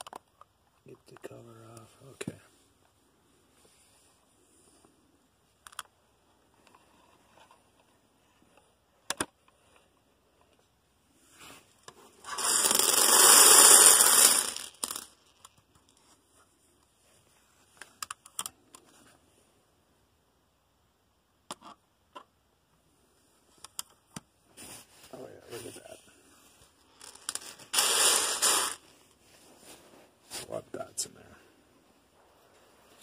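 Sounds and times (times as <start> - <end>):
lego parts clicking: 12.3 - 15.9.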